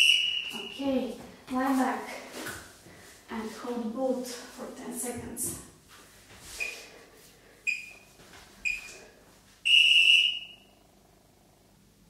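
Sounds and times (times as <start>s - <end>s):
electronic timer beeps: 7.7s - 9.0s, 9.7s - 10.7s.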